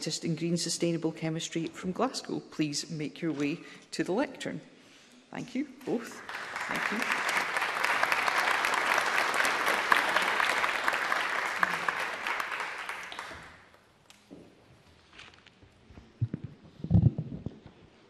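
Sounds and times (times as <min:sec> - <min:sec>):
audience applauding: 0:06.1 - 0:13.8.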